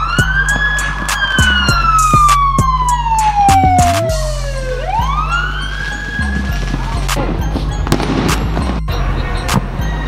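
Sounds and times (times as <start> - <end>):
beat with heavy bass: 0.0 - 4.5, 6.2 - 10.0
police siren wailing: 0.0 - 10.0
firework bangs: 6.4 - 9.7.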